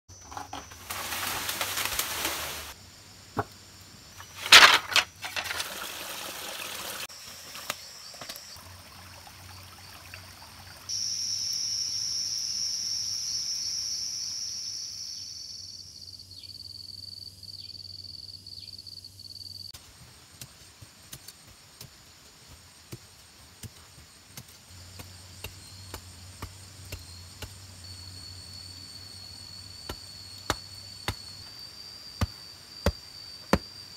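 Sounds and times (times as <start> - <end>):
forest insects droning: 0.1 - 33.9
soil scraping while digging: 4.2 - 6.7
water pouring: 5.2 - 10.9.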